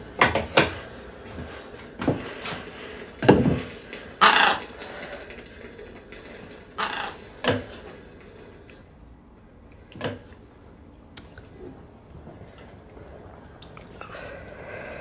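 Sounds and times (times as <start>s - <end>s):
breath: 14.0s - 15.0s.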